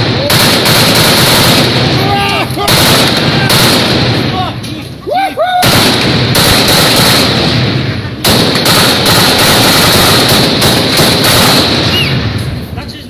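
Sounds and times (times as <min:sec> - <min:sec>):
automatic gunfire bursts: 0:00.0 - 0:02.0, 0:02.6 - 0:04.2, 0:05.6 - 0:12.2.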